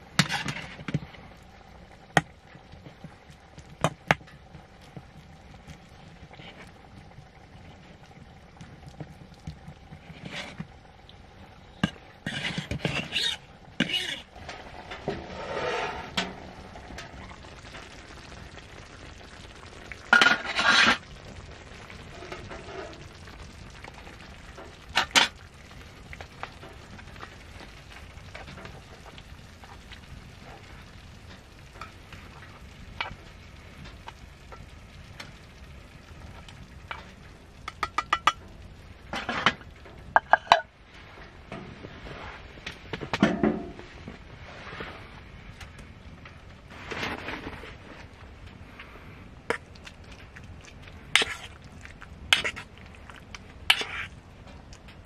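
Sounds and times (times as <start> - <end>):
faint sizzle: 0.0 - 55.0
spoon scraping a frying pan: 0.2 - 1.0, 11.7 - 16.6, 20.1 - 21.1, 39.1 - 40.7, 51.1 - 51.6, 52.3 - 52.7, 53.7 - 54.2
knife scraping a metal pan: 11.8 - 14.3, 15.2 - 16.3, 20.2 - 21.0, 53.7 - 54.1
pans and utensils clattering: 11.8 - 16.5, 20.1 - 21.0, 36.9 - 38.5, 39.1 - 40.7.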